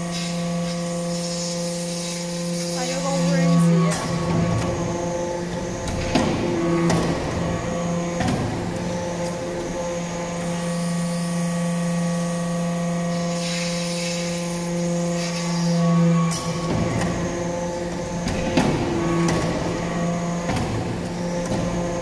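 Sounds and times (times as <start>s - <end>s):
hydraulic pump humming: 0.0s - 22.0s
hydraulic hiss: 13.1s - 22.0s.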